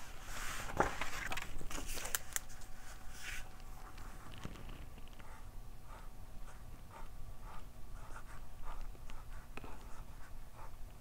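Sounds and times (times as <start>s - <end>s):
pen scratching on paper: 5.9s - 10.7s.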